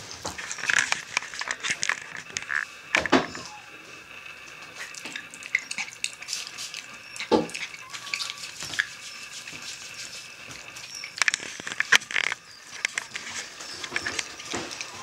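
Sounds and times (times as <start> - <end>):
dog licking and chewing: 4.5 - 15.0.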